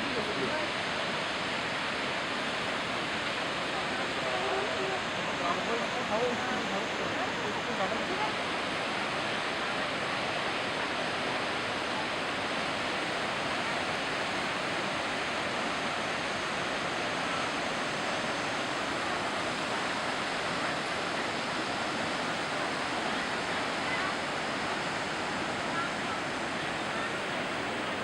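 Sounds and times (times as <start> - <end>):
river water rushing: 0.0 - 28.0.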